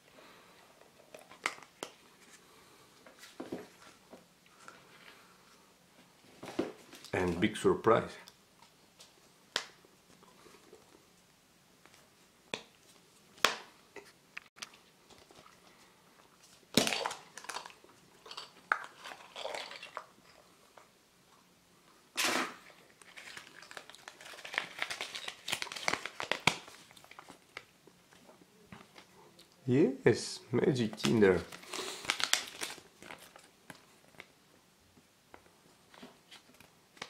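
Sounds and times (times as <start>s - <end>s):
paper crinkling: 22.6s - 27.7s, 30.8s - 34.3s.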